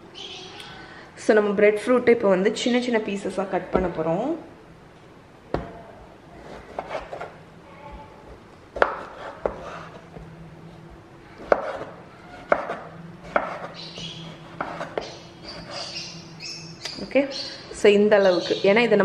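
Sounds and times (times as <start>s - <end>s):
knife chopping onto wooden board: 8.8s - 9.8s, 11.4s - 13.7s.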